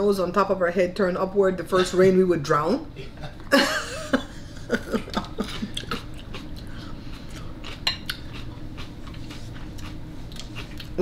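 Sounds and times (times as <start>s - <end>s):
lettuce being chewed: 5.1s - 11.0s
fork clicking on a plate: 7.7s - 8.5s.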